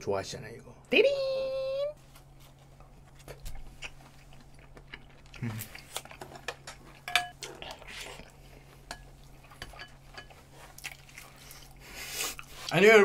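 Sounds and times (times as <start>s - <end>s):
utensils clinking against dishes: 6.2s - 7.5s.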